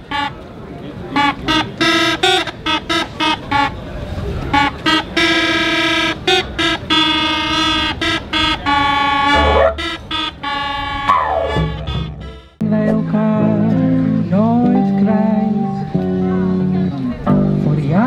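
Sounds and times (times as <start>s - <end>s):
folk wind instrument playing tune: 0.0s - 0.4s, 1.0s - 3.9s, 4.5s - 12.6s.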